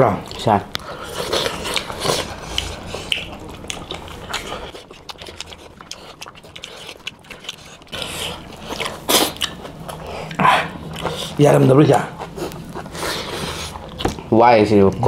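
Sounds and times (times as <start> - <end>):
fingers squishing food: 0.2 - 11.6
wet chewing and lip-smacking: 0.2 - 14.3.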